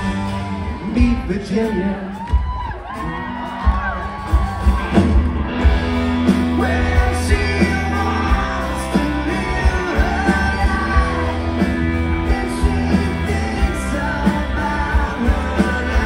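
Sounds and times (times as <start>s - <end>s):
live rock band music: 0.0s - 16.0s
person singing: 6.2s - 16.0s.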